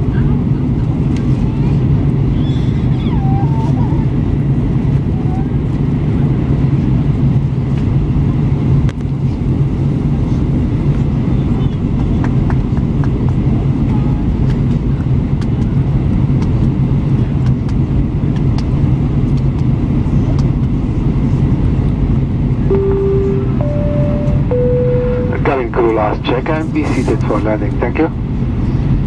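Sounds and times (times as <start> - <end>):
airplane cabin drone: 0.0 - 29.0
low hum: 22.6 - 26.6.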